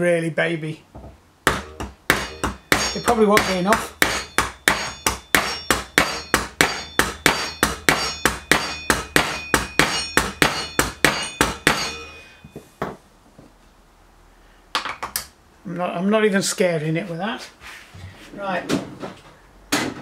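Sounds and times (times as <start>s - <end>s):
hammer tapping metal: 1.5s - 13.0s.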